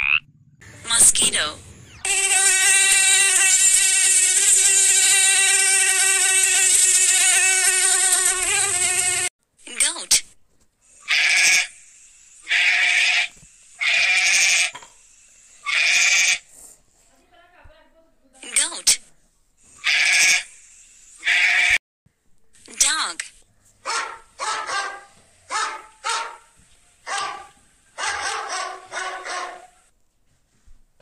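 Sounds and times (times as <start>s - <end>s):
mosquito whining: 2.0s - 9.3s
goat bleating: 5.3s - 8.4s, 11.0s - 11.7s, 12.5s - 14.8s, 15.6s - 16.5s, 19.7s - 20.5s, 21.2s - 21.8s.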